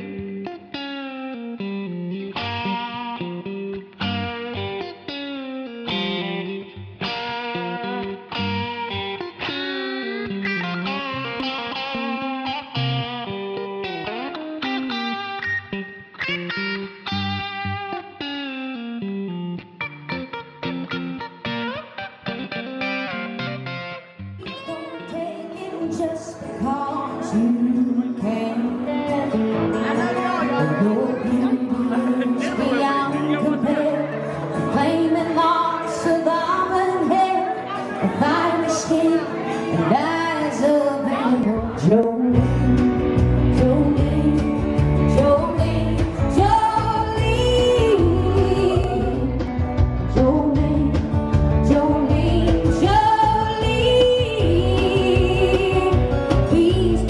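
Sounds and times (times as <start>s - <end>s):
guitars: 0.0s - 57.0s
band playing: 19.8s - 36.2s, 37.6s - 57.0s
woman singing: 24.4s - 57.0s.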